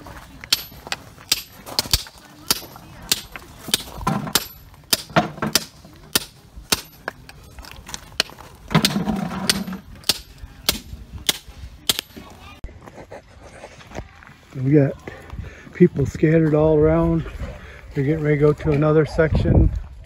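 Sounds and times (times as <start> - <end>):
hammer striking metal chisel: 0.5 - 7.1, 8.2 - 12.2.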